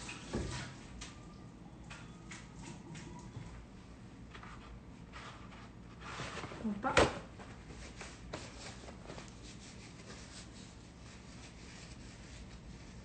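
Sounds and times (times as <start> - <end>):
paper towel rustling: 4.3 - 13.0.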